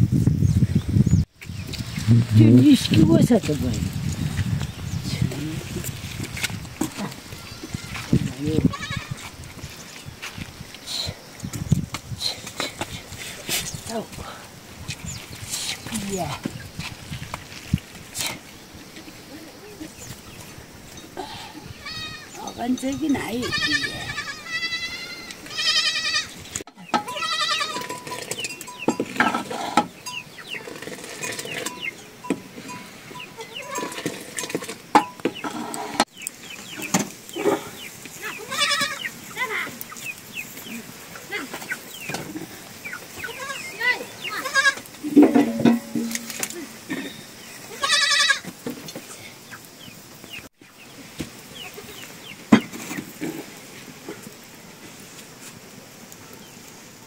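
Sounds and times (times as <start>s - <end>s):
small birds chirping: 0.1s - 34.0s, 34.9s - 54.6s
goats bleating: 6.9s - 9.3s, 21.4s - 22.4s, 23.2s - 26.4s, 27.0s - 28.1s, 38.1s - 39.5s, 43.2s - 48.5s.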